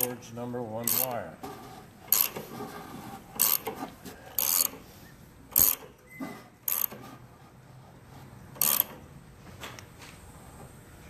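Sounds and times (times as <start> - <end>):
ratchet wrench clicking: 0.8 - 1.2, 2.1 - 2.4, 3.4 - 4.8, 5.5 - 5.9, 6.7 - 7.0, 8.6 - 9.0.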